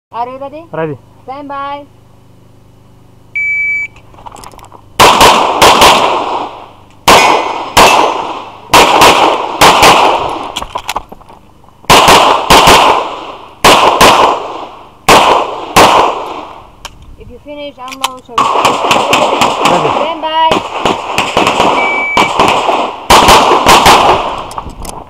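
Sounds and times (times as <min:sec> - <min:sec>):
shot timer beep: 0:03.4 - 0:04.0, 0:21.8 - 0:22.3
handgun shots echoing: 0:05.0 - 0:06.4, 0:07.1 - 0:10.7, 0:11.9 - 0:14.4, 0:17.9 - 0:24.5.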